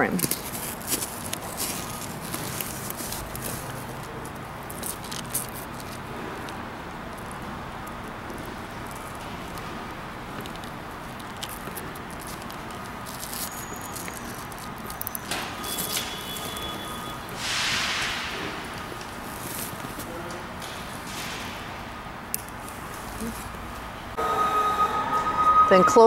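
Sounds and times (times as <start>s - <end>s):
rustling: 0.1s - 7.5s, 8.3s - 17.6s.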